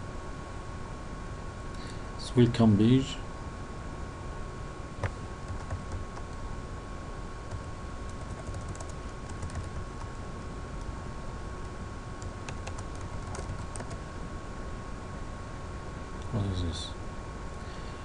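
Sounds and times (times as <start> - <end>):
steady background noise: 0.0 - 18.0
keyboard keystrokes: 8.1 - 10.2, 12.4 - 14.0.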